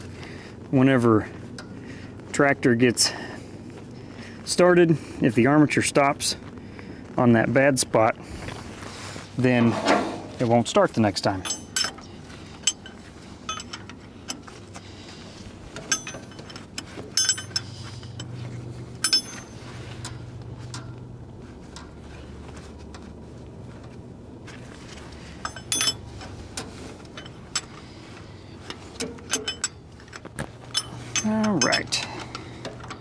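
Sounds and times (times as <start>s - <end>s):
low steady hum: 0.0s - 33.0s
wrench and bolts clinking on metal: 11.2s - 14.6s, 15.7s - 21.0s, 24.8s - 33.0s.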